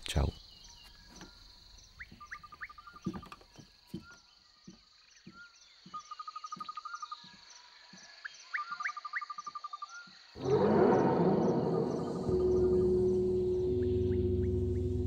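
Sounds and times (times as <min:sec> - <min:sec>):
high insect drone: 0:10.4 - 0:15.0
music: 0:10.4 - 0:15.0
rising chirps: 0:10.4 - 0:15.0.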